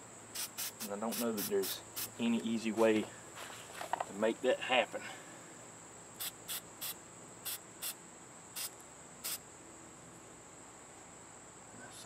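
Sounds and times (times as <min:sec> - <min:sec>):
cricket trill: 0:00.0 - 0:12.0
spray paint can hissing: 0:00.3 - 0:02.2, 0:06.2 - 0:08.0, 0:08.6 - 0:09.4.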